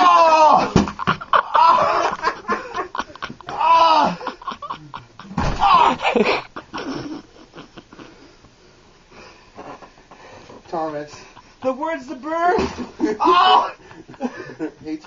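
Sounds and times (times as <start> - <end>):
people yelling: 0.0 - 0.8, 3.5 - 4.3, 5.5 - 6.0, 13.0 - 13.8
people laughing: 0.6 - 8.2, 12.6 - 15.0.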